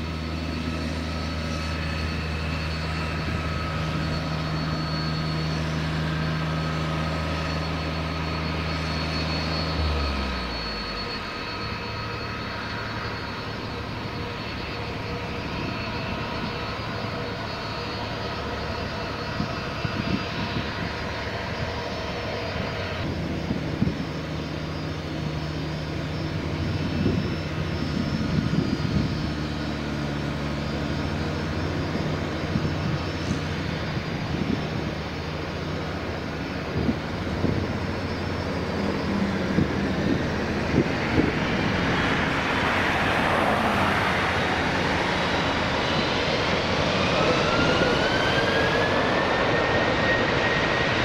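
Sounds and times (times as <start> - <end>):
jet engines roaring with whine: 0.0 - 51.0.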